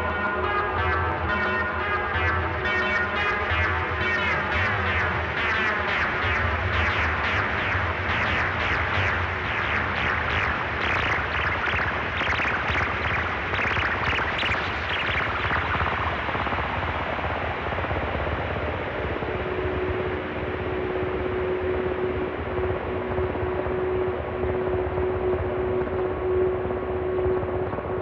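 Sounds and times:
noisy synth wash: 0.0s - 17.2s
held synth tone: 4.5s - 16.0s.

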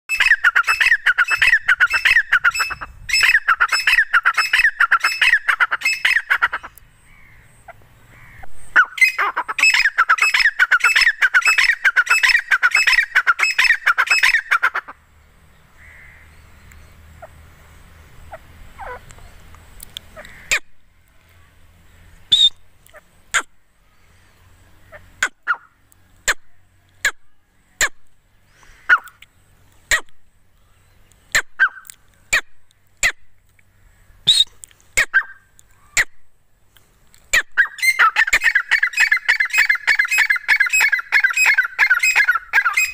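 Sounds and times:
francolin shrill repeated calls: 0.1s - 7.5s, 8.1s - 15.0s, 22.1s - 22.6s, 34.2s - 36.2s, 37.3s - 42.9s.

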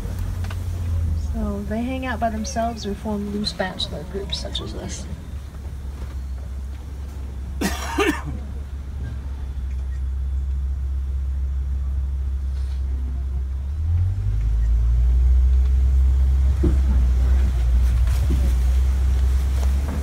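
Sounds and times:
truck engine rumbling: 0.0s - 20.0s.

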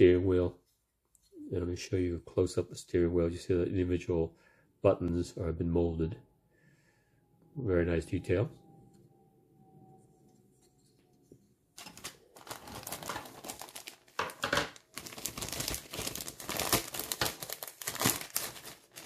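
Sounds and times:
plastic bag crinkling: 11.8s - 19.0s.

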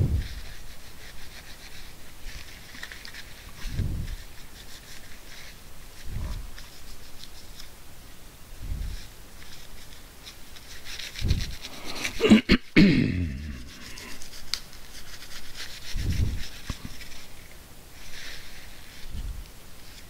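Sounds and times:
low thumps: 0.0s - 0.4s
tissue rubbing circuit board: 0.0s - 7.6s, 8.6s - 12.3s, 13.4s - 17.3s.

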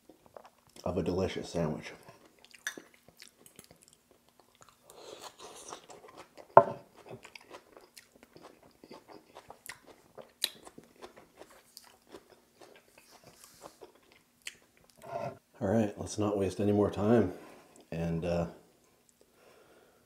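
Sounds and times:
crunching and chewing: 0.0s - 0.9s, 1.8s - 15.2s.

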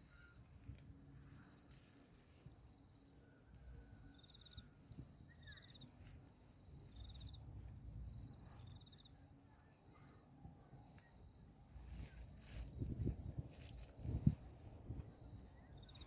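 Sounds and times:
small animal high-pitched chirps: 0.0s - 1.8s, 3.5s - 7.4s
faint low rumble: 0.0s - 16.0s
faint steady high tone: 0.0s - 16.0s.

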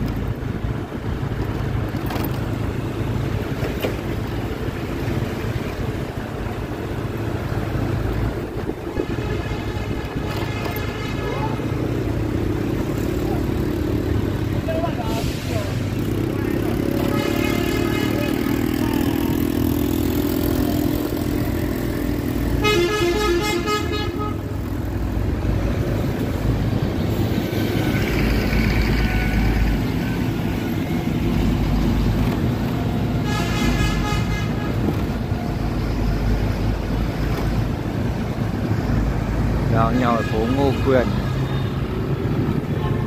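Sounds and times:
traffic engines and road noise: 0.0s - 43.0s
vehicle horn blasts: 17.0s - 18.4s, 22.6s - 24.5s, 33.2s - 34.9s.

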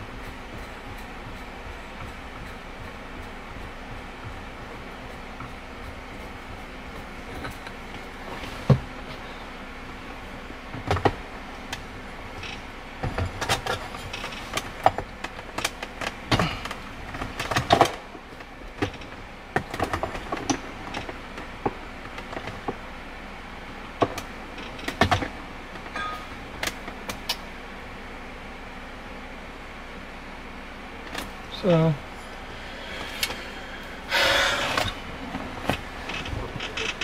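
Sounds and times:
gear shifter clicks and knocks: 0.1s - 9.2s, 10.7s - 22.8s, 24.0s - 27.4s, 34.2s - 37.0s.

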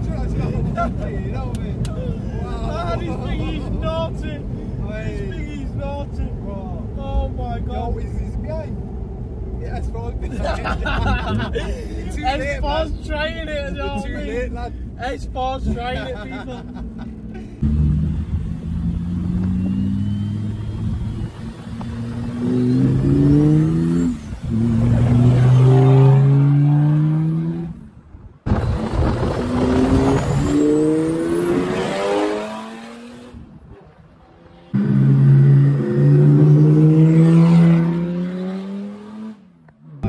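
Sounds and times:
diesel engine accelerating hard: 17.6s - 27.8s, 28.5s - 33.5s, 34.7s - 40.0s.

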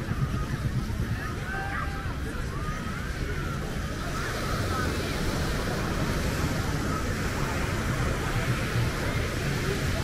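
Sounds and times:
faint distant voices: 0.0s - 10.0s
surf: 0.0s - 10.0s.

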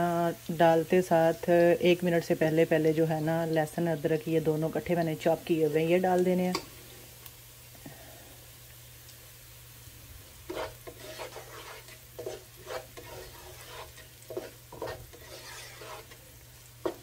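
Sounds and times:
faint frying sizzle: 0.0s - 17.0s
spatula scraping wok: 10.4s - 17.0s.

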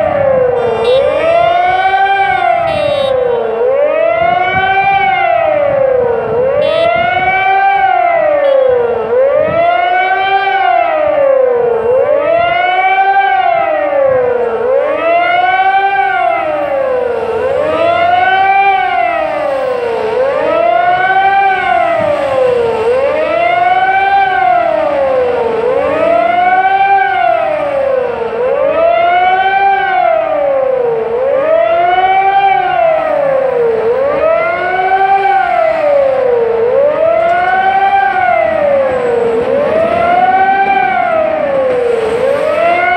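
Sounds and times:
siren wailing: 0.0s - 42.9s.

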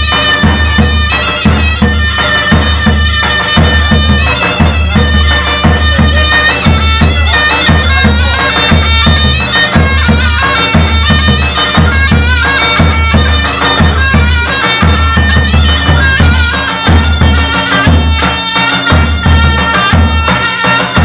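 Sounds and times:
reed pipe folk melody: 0.0s - 21.0s.

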